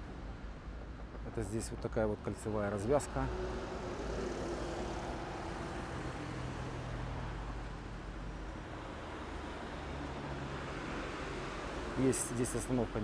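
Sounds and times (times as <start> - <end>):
bus and cars driving past: 2.7 - 13.0.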